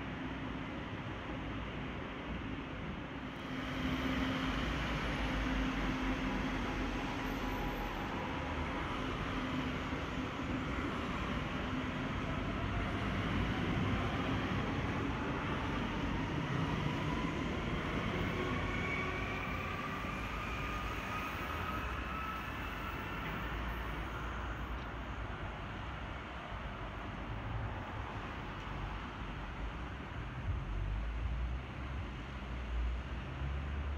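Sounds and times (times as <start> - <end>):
low train rumble: 0.0 - 33.9
train motor whine: 3.4 - 8.2.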